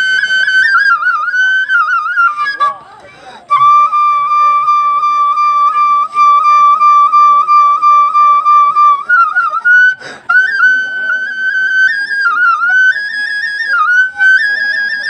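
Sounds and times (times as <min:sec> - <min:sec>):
flute melody: 0:00.0 - 0:15.0
breath: 0:03.0 - 0:03.5, 0:10.0 - 0:10.3.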